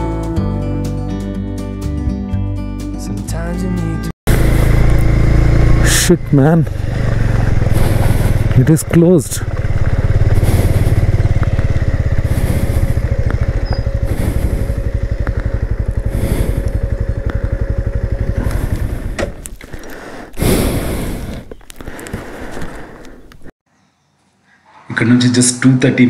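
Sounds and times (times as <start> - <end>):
motorcycle engine idling: 4.3 - 23.0.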